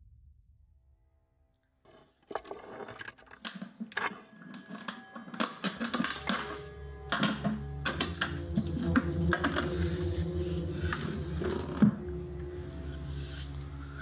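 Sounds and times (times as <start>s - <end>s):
latch and objects clinking: 2.2s - 8.4s
film score sustained tones: 4.4s - 14.0s
low drone: 5.8s - 14.0s.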